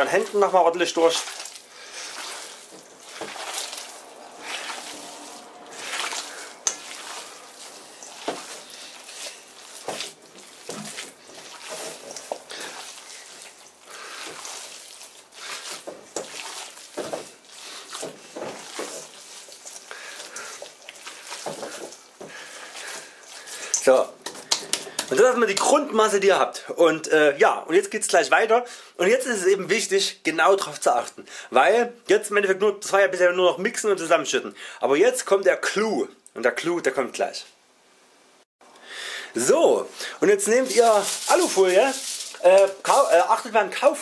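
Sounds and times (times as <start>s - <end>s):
hands squishing wet dough: 0.0s - 26.0s, 39.4s - 44.0s.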